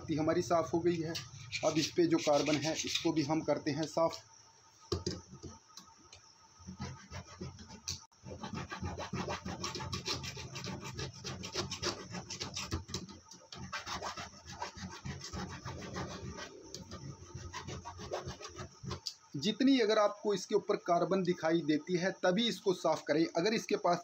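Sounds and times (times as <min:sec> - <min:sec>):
hand file scraping metal: 0:01.1 - 0:03.2, 0:06.8 - 0:19.1.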